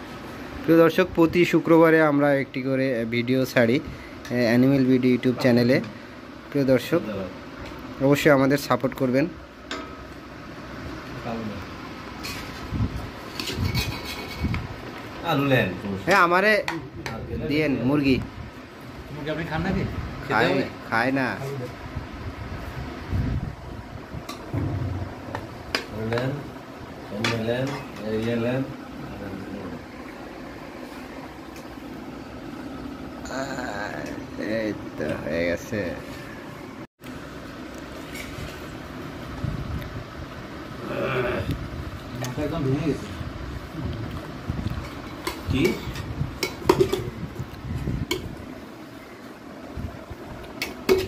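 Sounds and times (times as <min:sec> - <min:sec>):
low rumbling noise: 0:21.9 - 0:27.1.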